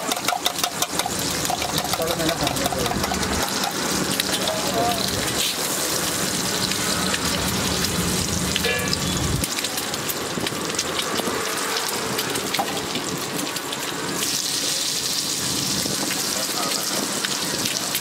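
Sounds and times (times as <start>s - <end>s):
oil sizzling on a griddle: 0.0s - 18.0s.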